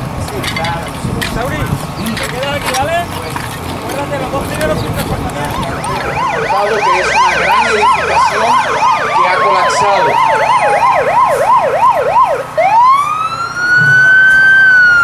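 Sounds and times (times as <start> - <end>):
siren wail: 5.2 - 15.0
siren yelp: 5.3 - 15.0
siren sliding down in pitch: 5.4 - 15.0.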